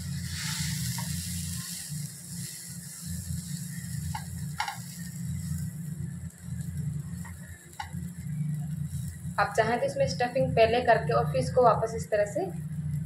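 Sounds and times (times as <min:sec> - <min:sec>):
food sizzling on a hot griddle: 0:00.0 - 0:09.6
steady low hum: 0:00.0 - 0:13.0.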